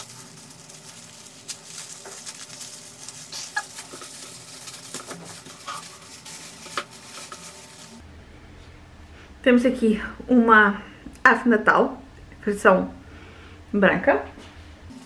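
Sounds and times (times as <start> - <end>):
packing material rustling: 0.0 - 8.0.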